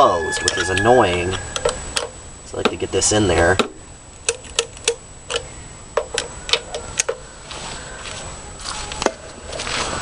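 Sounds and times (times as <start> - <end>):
soft rustle: 7.4 - 10.0.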